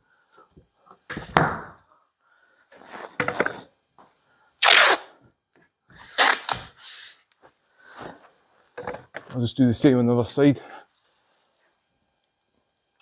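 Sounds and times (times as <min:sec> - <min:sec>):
adhesive tape pulled and torn: 0:04.6 - 0:05.2, 0:06.0 - 0:06.7.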